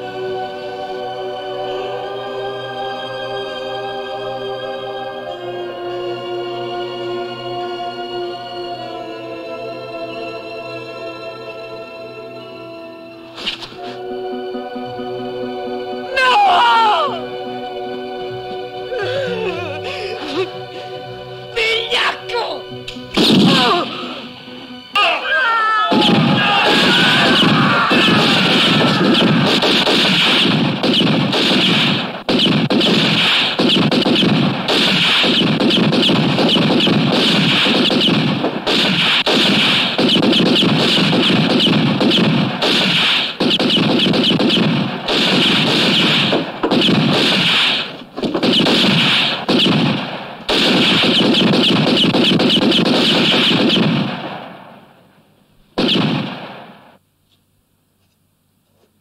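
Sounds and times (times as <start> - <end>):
soundtrack music: 0.0 - 32.2
rapid gunfire: 23.2 - 23.7, 25.9 - 54.9, 55.8 - 57.0.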